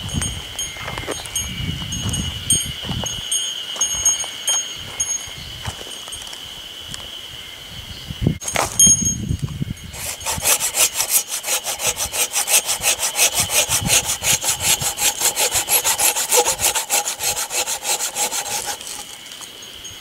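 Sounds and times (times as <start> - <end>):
hand saw cutting through log: 9.9 - 19.2.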